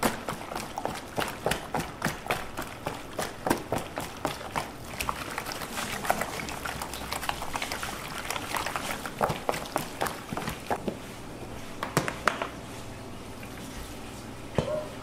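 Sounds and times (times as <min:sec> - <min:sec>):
wet squelching of kneaded meat: 0:00.0 - 0:11.8.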